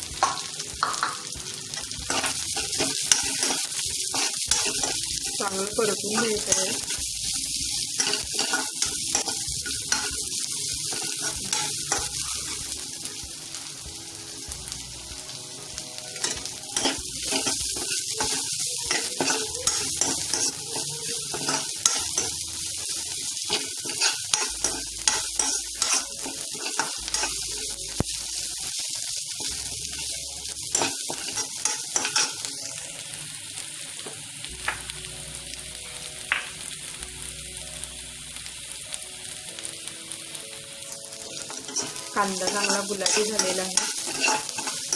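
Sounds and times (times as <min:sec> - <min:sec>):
onions sizzling in hot oil: 0:00.0 - 0:44.9
spatula scraping and tapping pan: 0:00.2 - 0:05.0, 0:08.0 - 0:10.2, 0:16.2 - 0:22.4, 0:23.4 - 0:27.5, 0:30.7 - 0:32.4, 0:41.4 - 0:44.9.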